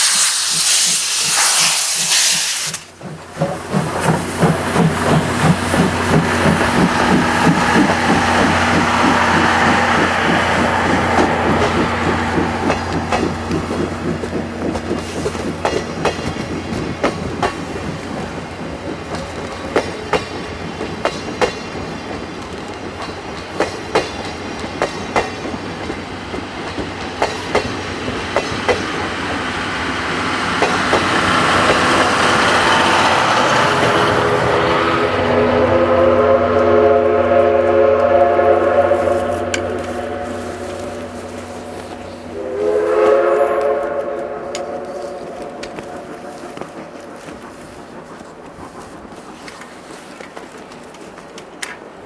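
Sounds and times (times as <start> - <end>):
train coaches rushing past: 0.0 - 52.0
wheels clicking over rail joints: 0.5 - 32.2, 44.5 - 52.0.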